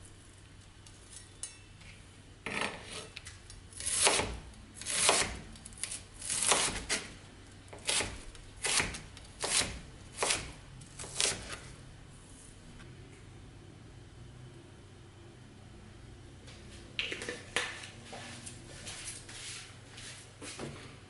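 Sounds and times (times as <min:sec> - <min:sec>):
knife slicing onion on board: 0:03.7 - 0:11.7.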